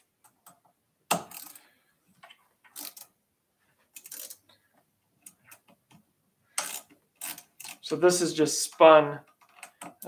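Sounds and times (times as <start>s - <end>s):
ratchet wrench clicking: 1.2s - 1.6s, 2.8s - 3.1s, 4.0s - 4.4s, 6.6s - 7.9s.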